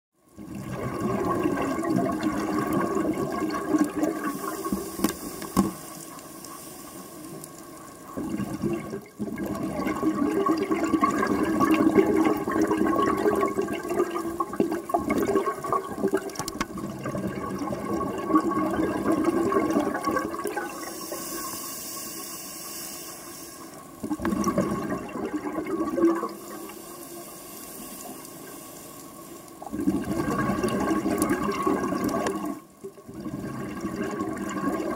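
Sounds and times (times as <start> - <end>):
exhaled bubbles rushing underwater: 0.3 - 5.9, 7.6 - 21.6, 23.8 - 26.9, 29.6 - 34.9
regulator air hisses: 4.2 - 7.4, 20.7 - 23.8.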